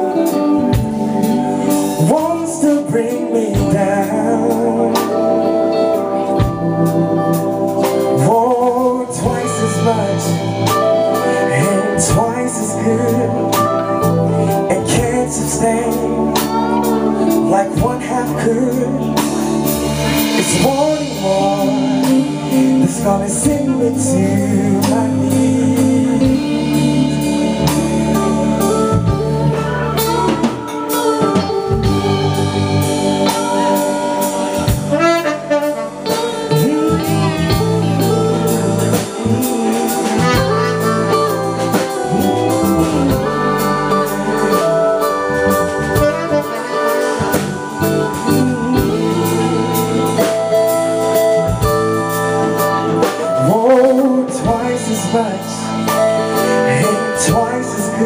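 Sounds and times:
drum kit: 0:00.0 - 0:58.0
electric bass: 0:00.0 - 0:58.0
person singing: 0:00.0 - 0:58.0.

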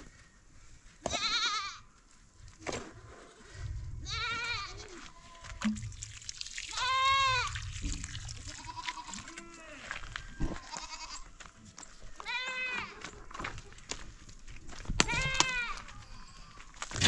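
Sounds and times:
livestock bleating: 0:01.0 - 0:01.9, 0:08.4 - 0:11.3, 0:12.2 - 0:13.0.

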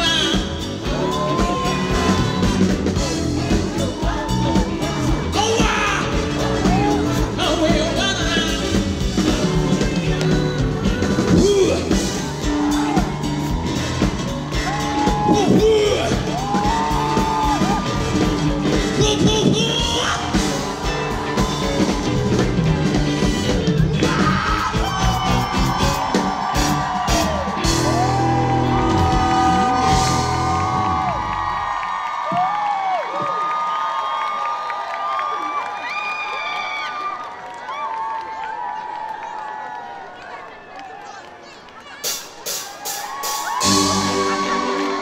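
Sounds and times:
people yelling: 0:00.0 - 0:08.6, 0:10.8 - 0:45.0
person singing: 0:00.0 - 0:13.7
live band playing: 0:00.0 - 0:31.7, 0:41.6 - 0:45.0.

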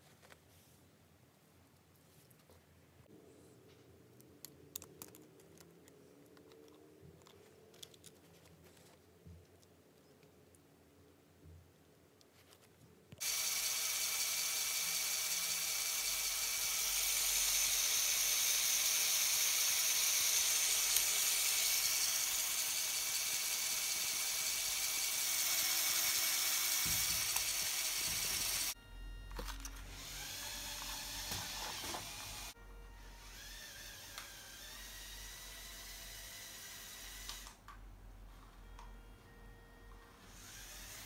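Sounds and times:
electric toy motor whining: 0:13.2 - 0:28.8, 0:29.6 - 0:37.6, 0:40.2 - 0:41.0.

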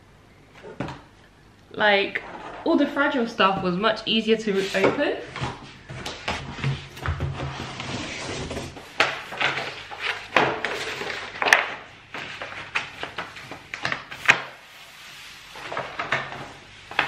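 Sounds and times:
cardboard and paper rustling: 0:04.5 - 0:17.0.

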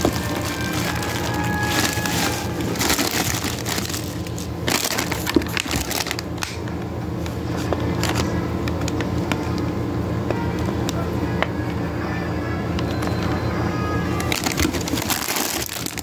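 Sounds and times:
plastic bags crinkling: 0:00.0 - 0:06.7, 0:07.4 - 0:09.6, 0:14.1 - 0:16.0.

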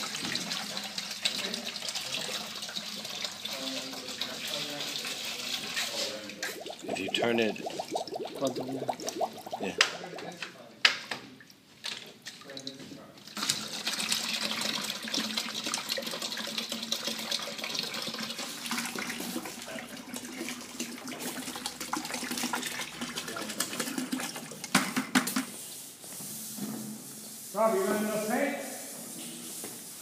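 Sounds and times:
water pouring into plastic bucket: 0:00.0 - 0:10.5, 0:13.4 - 0:24.9.

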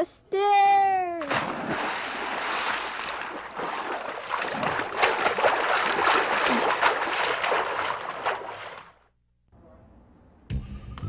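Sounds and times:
water rushing and splashing: 0:01.3 - 0:09.0.

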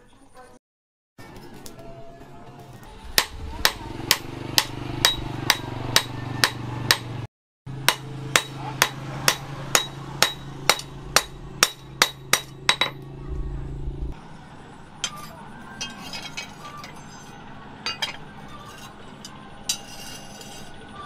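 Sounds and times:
hammer striking steel on anvil: 0:03.2 - 0:13.1, 0:15.0 - 0:20.8.

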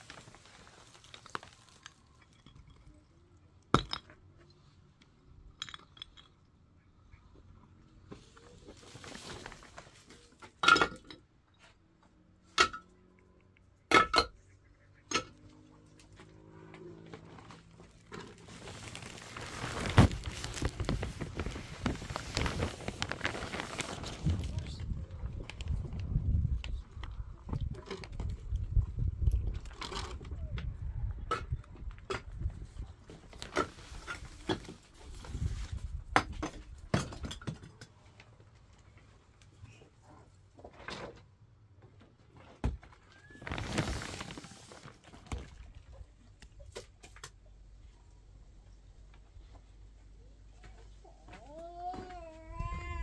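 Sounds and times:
clay bricks clinking: 0:05.4 - 0:06.6
wind rumble on microphone: 0:19.5 - 0:36.9, 0:52.5 - 0:53.0.

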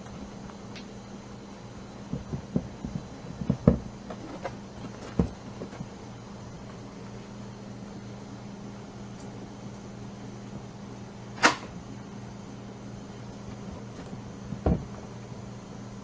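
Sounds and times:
rabbits gnawing carrot crunches: 0:00.0 - 0:07.8
steady low hum: 0:00.0 - 0:16.0.

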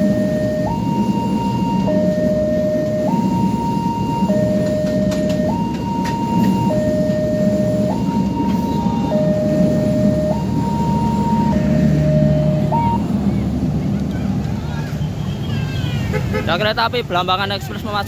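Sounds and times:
two-tone crossing alarm: 0:00.0 - 0:13.2
train coaches rumbling past: 0:00.0 - 0:18.0.

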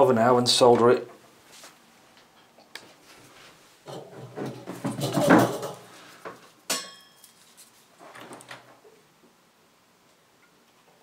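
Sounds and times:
rustling and knocks: 0:01.1 - 0:08.8
sharp metallic clack: 0:06.7 - 0:07.2.

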